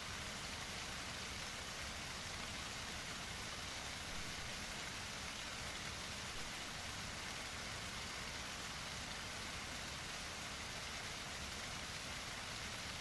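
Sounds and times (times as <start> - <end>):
running water rushing: 0.0 - 13.0.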